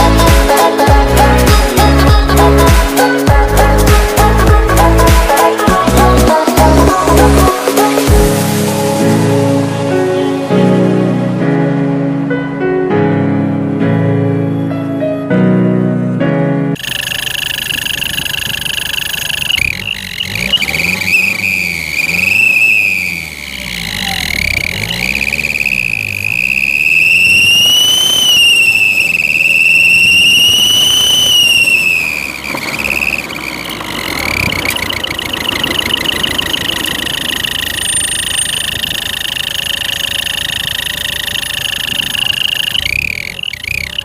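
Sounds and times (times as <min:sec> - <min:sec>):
car engine running: 0:00.0 - 0:09.2, 0:16.8 - 0:44.0
exhaust whistle: 0:16.8 - 0:44.0.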